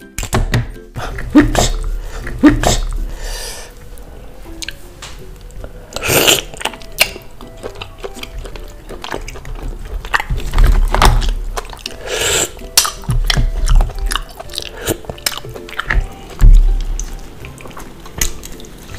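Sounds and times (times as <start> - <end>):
quiet background music: 0.0 - 18.9
chewing and slurping: 5.4 - 18.9.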